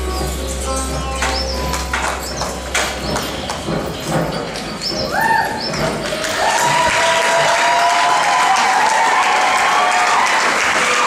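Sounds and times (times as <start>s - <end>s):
metal folding chairs clacking: 0.0s - 9.0s
audience applause and cheering: 1.7s - 11.0s.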